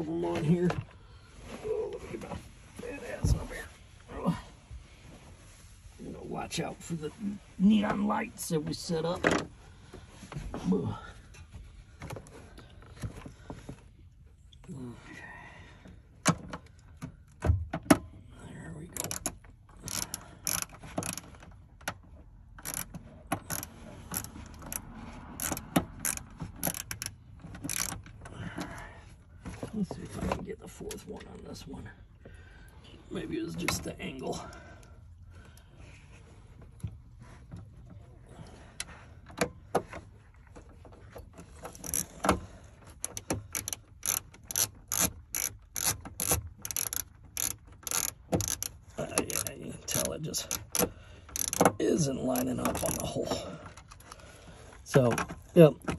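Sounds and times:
hand ratchet clicking: 19.0 - 21.5, 22.5 - 28.2, 41.7 - 42.4, 43.0 - 53.1.

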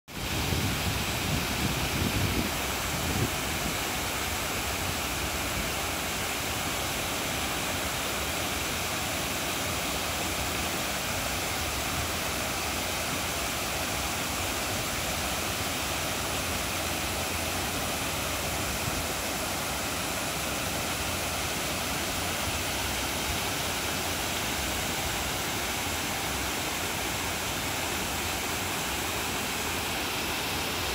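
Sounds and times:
waterfall rushing: 0.1 - 30.9.

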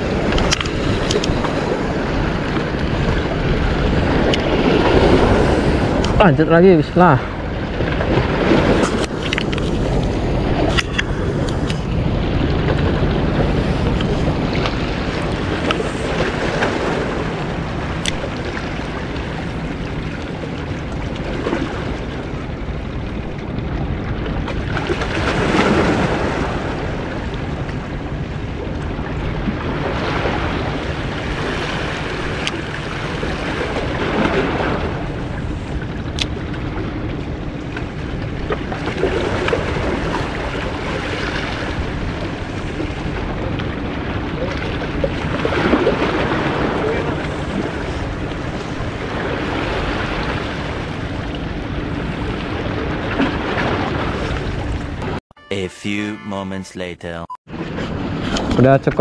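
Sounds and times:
wind buffeting microphone: 0.0 - 55.2.

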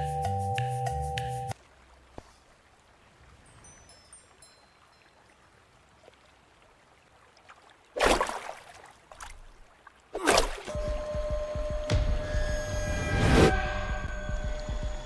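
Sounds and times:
high tinkling chime notes: 3.5 - 5.1.

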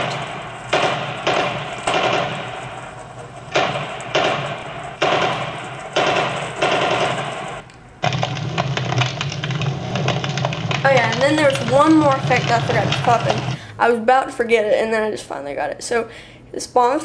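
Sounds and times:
gunshot sound effects: 0.0 - 10.8
crackling fire sound effect: 0.0 - 13.6.

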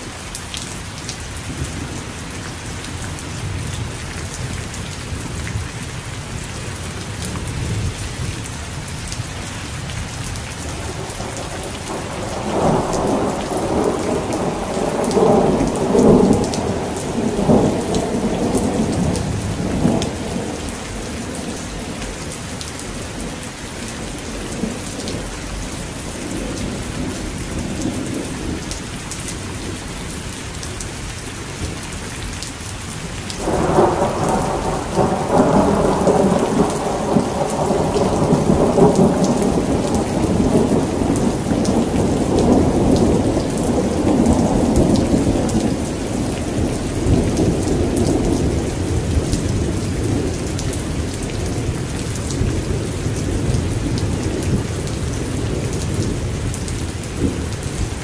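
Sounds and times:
heavy rain falling: 0.0 - 58.0
thunder rumbling: 10.7 - 28.8, 33.4 - 58.0.

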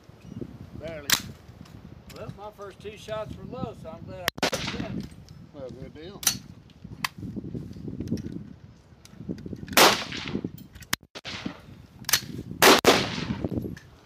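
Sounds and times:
wind rumble on microphone: 0.0 - 14.0
rifle shots with echo: 4.4 - 5.0, 9.8 - 10.4, 12.6 - 13.4.

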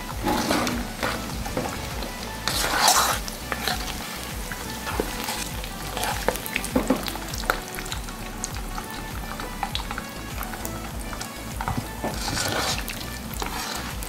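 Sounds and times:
metal ladle scraping a pan: 0.0 - 14.0
oil sizzling in a wok: 0.0 - 14.0.

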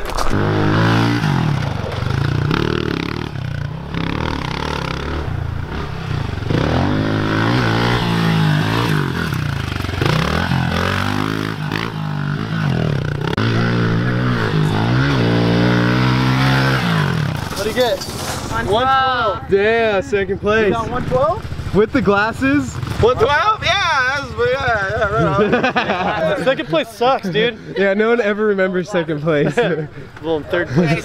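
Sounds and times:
pit bike engine revving: 0.2 - 17.9.

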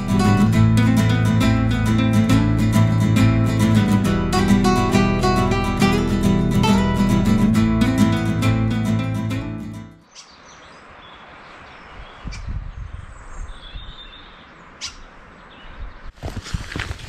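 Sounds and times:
acoustic guitar music: 0.0 - 10.0
faint bird chirps: 10.0 - 16.1
footsteps: 16.1 - 17.0.

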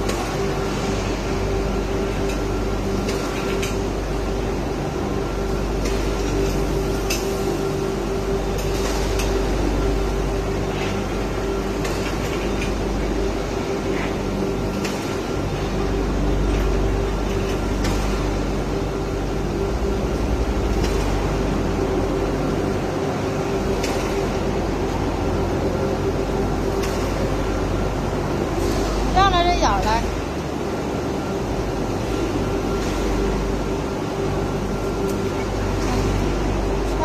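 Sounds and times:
workshop machinery humming: 0.0 - 37.0.

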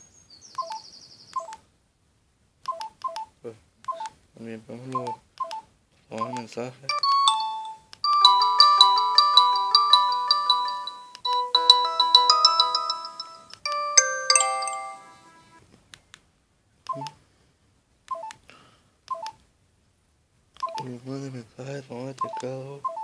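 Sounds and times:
phone electronic message tones: 6.2 - 15.6, 22.2 - 23.0.

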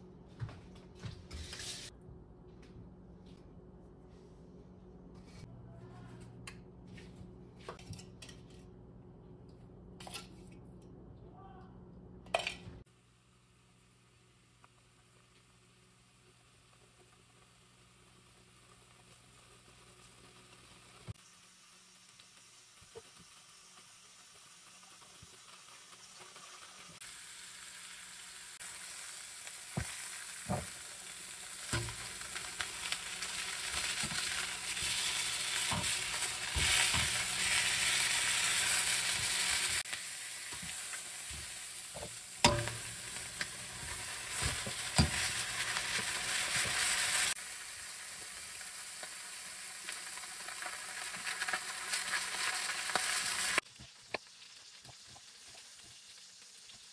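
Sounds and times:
chicken sizzling in a pan: 12.8 - 56.9
metal tongs clacking on pan: 42.4 - 43.0.

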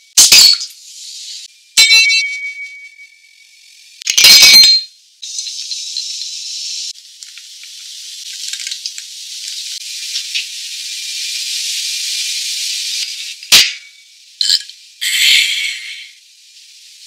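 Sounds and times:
faint crackles: 6.9 - 10.5.

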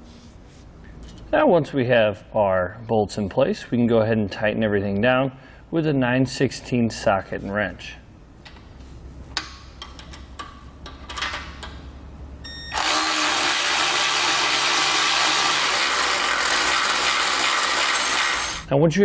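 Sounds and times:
electric ratchet running: 12.7 - 18.7.

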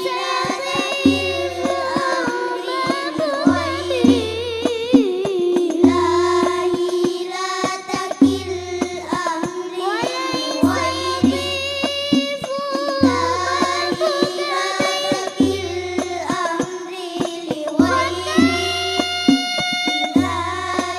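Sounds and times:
children singing over a pa: 0.0 - 20.9
frame drums: 0.0 - 20.9
deep bass drum strokes: 0.8 - 5.0.

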